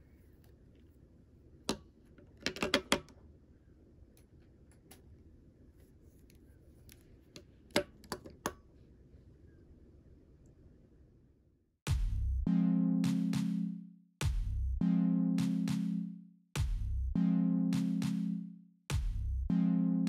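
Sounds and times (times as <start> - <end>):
plastic pens clacking on table: 1.7 - 3.2, 6.9 - 8.6.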